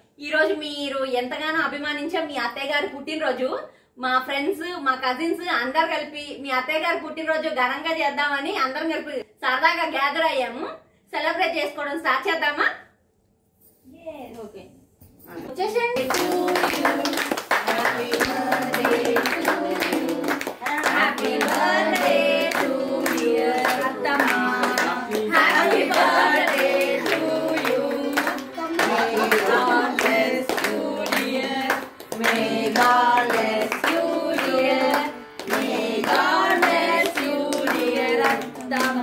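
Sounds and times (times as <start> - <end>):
hands clapping: 16.0 - 39.0
women singing together: 16.0 - 39.0.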